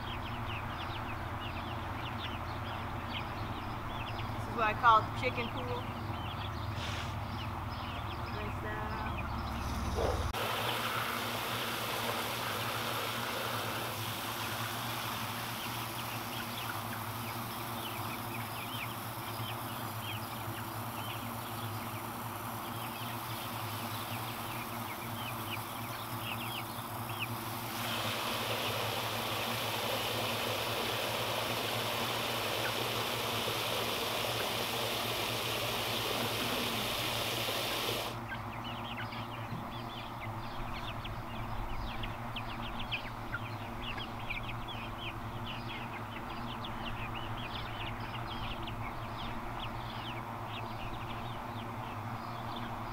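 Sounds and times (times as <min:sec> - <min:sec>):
hose water spraying and splashing: 0:10.4 - 0:18.3, 0:27.4 - 0:38.2.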